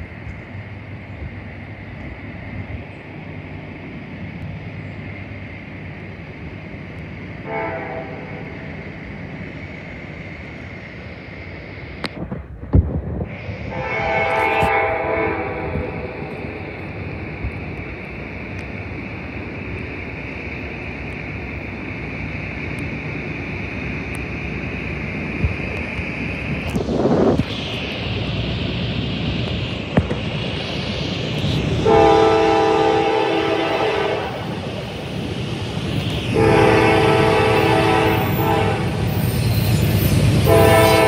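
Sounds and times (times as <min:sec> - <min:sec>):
rumble of oncoming train: 0:00.0 - 0:41.0
train air horn blasts: 0:07.4 - 0:08.4, 0:13.7 - 0:16.3, 0:31.8 - 0:34.4, 0:36.3 - 0:39.0, 0:40.4 - 0:41.0.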